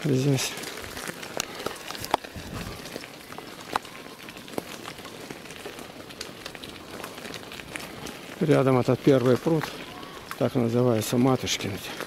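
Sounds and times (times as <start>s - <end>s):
bicycle tyres hissing on wet road: 0.0s - 12.0s.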